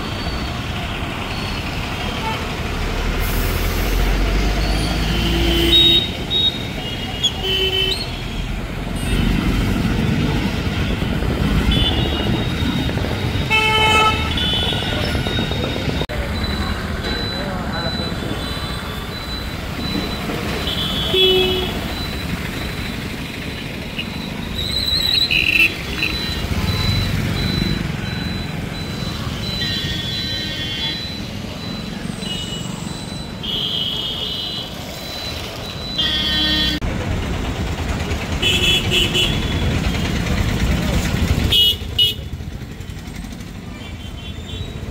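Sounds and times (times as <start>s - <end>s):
traffic engines rumbling: 0.0s - 44.9s
vehicle horn toots: 11.6s - 15.2s, 20.6s - 21.8s, 36.0s - 36.8s, 38.4s - 39.7s.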